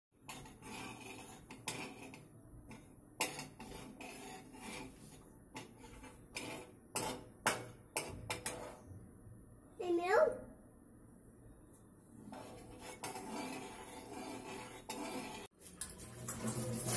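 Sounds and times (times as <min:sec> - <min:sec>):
metal spoon scraping a steel pan: 0:00.2 - 0:08.9, 0:12.2 - 0:15.5.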